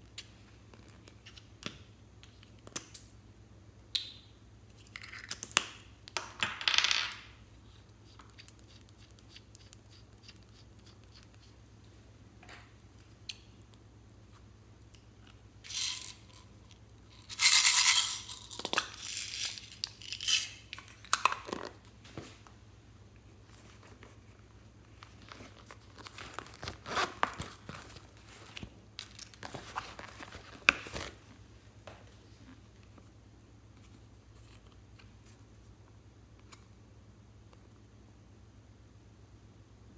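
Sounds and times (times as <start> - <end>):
beads rattling in plastic case: 15.7 - 16.5, 17.1 - 20.6.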